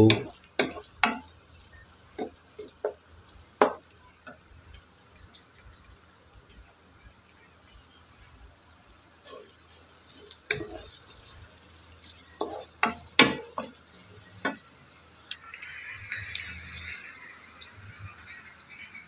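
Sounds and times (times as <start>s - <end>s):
frying sizzle: 0.0s - 19.0s
spatula scraping a wok: 9.2s - 14.6s.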